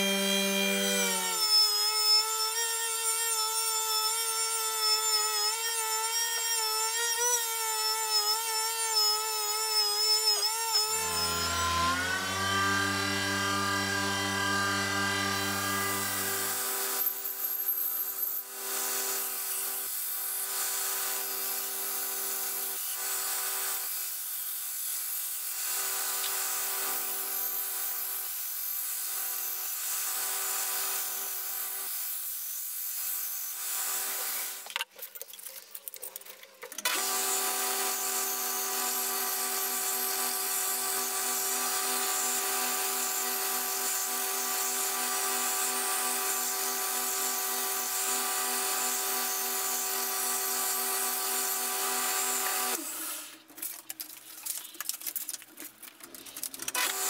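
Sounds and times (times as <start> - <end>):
belt grinder motor: 0.0 - 19.1, 56.5 - 57.0.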